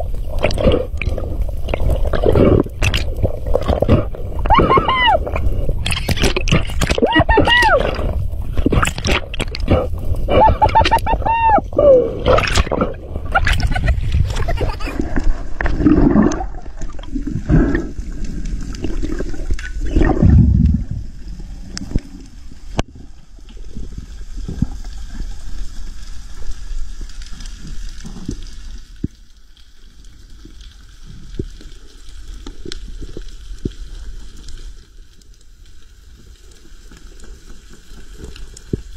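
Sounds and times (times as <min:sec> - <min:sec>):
bubbling surges: 0:00.0 - 0:25.2
underwater water gurgling: 0:00.0 - 0:38.9.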